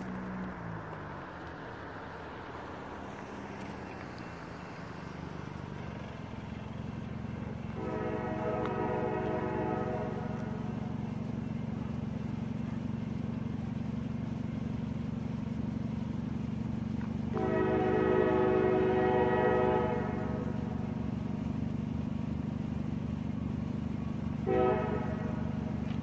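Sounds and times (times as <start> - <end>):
diesel locomotive engine drone: 0.0 - 26.0
locomotive air horn blast: 7.7 - 11.0, 17.3 - 21.2, 24.4 - 25.8.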